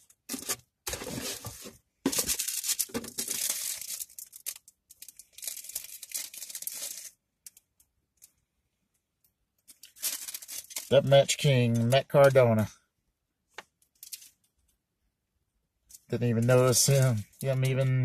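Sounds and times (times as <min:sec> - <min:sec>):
plastic wrapping crinkling and tearing: 0:00.0 - 0:07.6, 0:09.7 - 0:11.1, 0:13.9 - 0:14.4.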